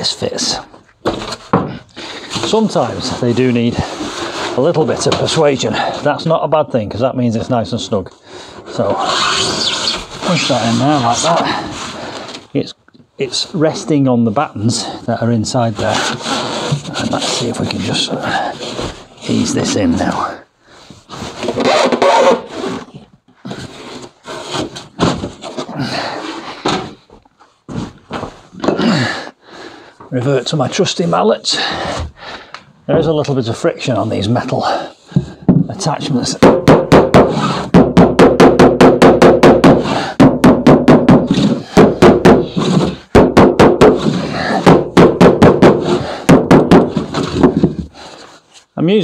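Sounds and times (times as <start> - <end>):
foam board scraping timber: 2.2 - 6.0, 8.7 - 12.5, 15.6 - 19.6, 42.4 - 43.1, 43.9 - 44.7
person grunting: 28.6 - 29.3
mallet hammering wooden block: 36.4 - 47.0.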